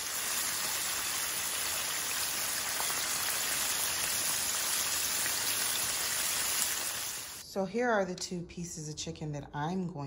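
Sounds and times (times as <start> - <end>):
chicken sizzling in hot oil: 0.0 - 7.4.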